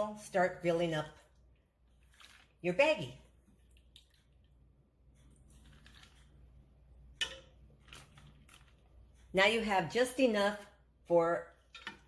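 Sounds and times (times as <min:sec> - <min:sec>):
ladle scooping beans: 0:01.8 - 0:02.6, 0:05.3 - 0:06.4, 0:07.2 - 0:08.9.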